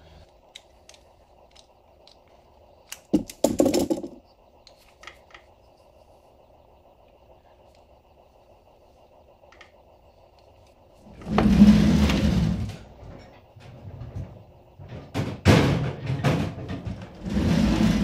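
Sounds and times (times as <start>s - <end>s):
sharp clicks: 0.2s - 5.6s.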